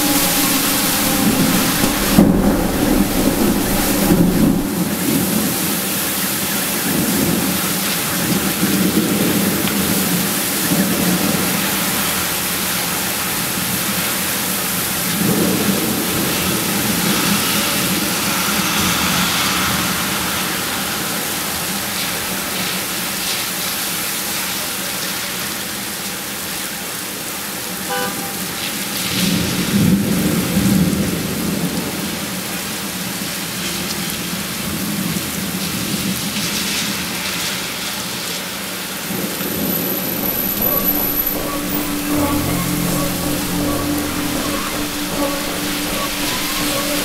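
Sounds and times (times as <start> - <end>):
low rumble: 0.0 - 5.6, 16.2 - 22.9, 39.4 - 47.0
heavy rain pouring: 0.0 - 23.5, 36.0 - 47.0.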